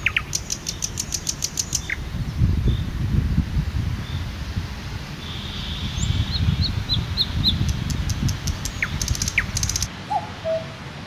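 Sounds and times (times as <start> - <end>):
wild birds singing and calling: 0.0 - 2.9, 5.2 - 10.9.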